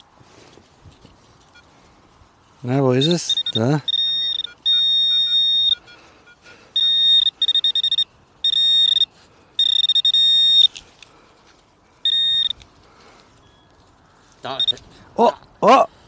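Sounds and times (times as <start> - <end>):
metal detector pinpointer beeping: 1.4 - 1.8, 2.9 - 10.8, 12.0 - 12.7, 13.4 - 13.8, 14.5 - 14.8.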